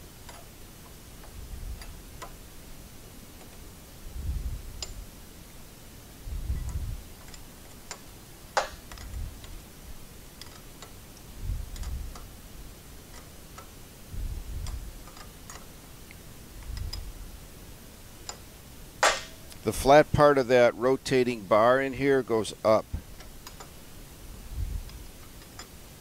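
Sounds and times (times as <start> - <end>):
metal parts clicking and tapping: 0.2 - 2.4, 10.4 - 12.3, 24.9 - 25.8.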